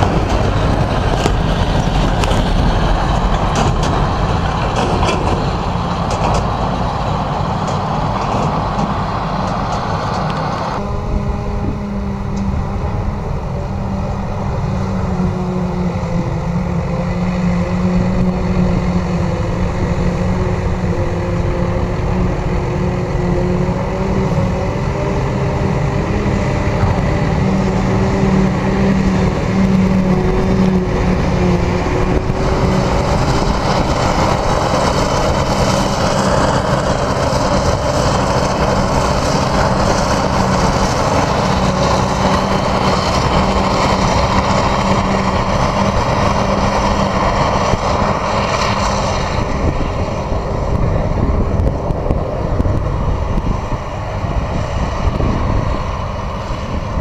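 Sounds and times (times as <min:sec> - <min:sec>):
forage harvester chopping grass: 0:00.0 - 0:10.6, 0:25.7 - 0:50.2
tractor engine drone: 0:00.0 - 0:57.0.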